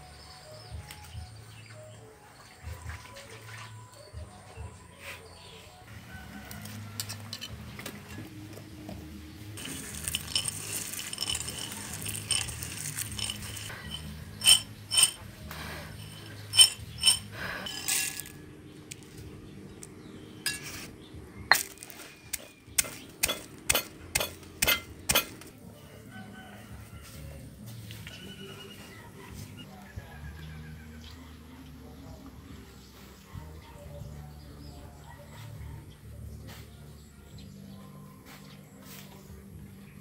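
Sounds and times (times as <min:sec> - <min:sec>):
utensils and dishes clinking: 0:06.8 - 0:08.3, 0:09.6 - 0:18.5, 0:20.4 - 0:20.9, 0:21.5 - 0:25.6.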